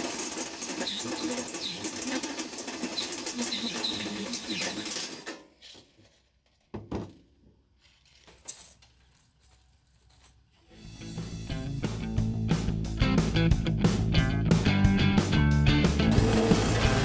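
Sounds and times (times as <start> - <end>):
drill grinding through metal: 0.0 - 5.3, 16.1 - 17.0.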